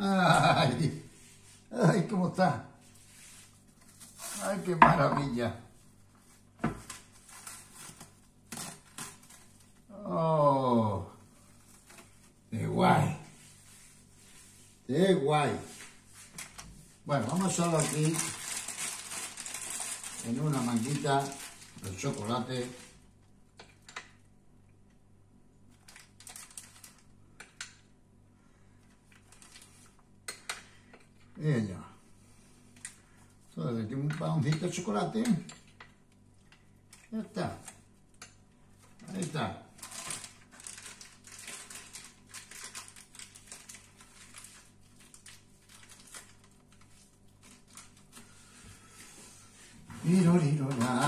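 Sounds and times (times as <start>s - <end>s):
plastic piping bag rustling: 15.5s - 23.2s, 25.7s - 27.2s, 29.0s - 30.1s, 38.7s - 51.0s.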